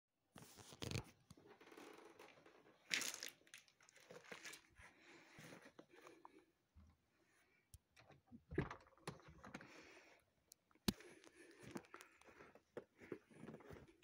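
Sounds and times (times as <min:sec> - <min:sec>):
crunching and rustling: 0:01.7 - 0:05.7.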